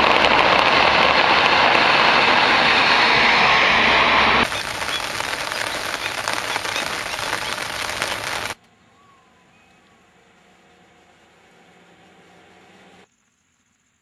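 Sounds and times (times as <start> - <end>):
heavy rain on floodwater: 0.0 - 3.1, 4.4 - 8.6
heavy rain on wet road: 0.0 - 8.6.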